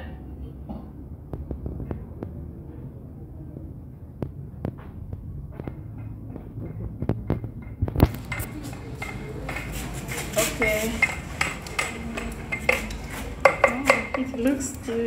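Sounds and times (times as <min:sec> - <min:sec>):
pots and utensils knocking: 0:07.6 - 0:15.0
wooden stick stirring paste: 0:08.1 - 0:15.0.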